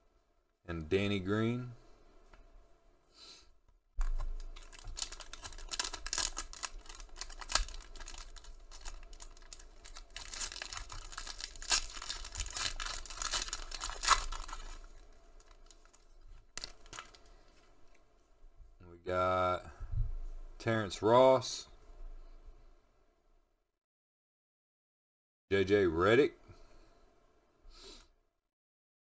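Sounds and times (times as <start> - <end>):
wrapper crinkling and tearing: 4.0 - 17.4.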